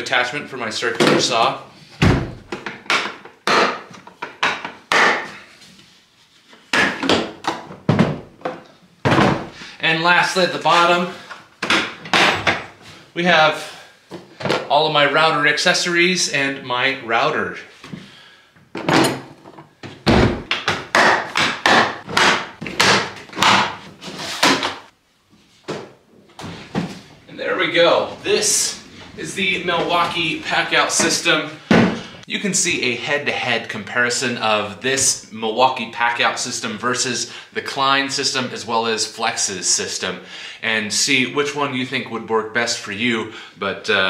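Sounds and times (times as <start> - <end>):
plastic tool boxes knocking: 6.7 - 9.5.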